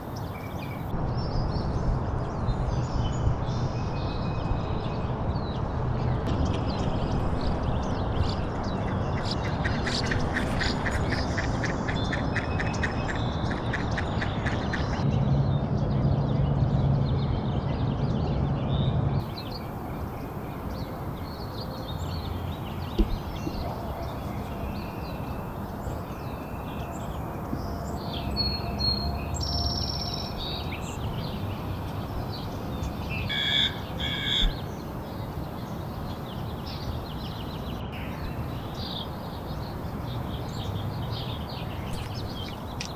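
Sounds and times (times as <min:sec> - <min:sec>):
birds calling and chirping: 0:00.0 - 0:01.6, 0:06.4 - 0:15.1, 0:19.2 - 0:42.9.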